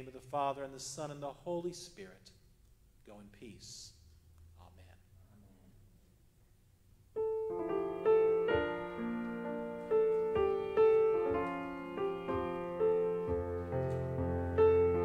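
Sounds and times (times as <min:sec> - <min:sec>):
slow piano chords ringing: 0:07.2 - 0:15.0.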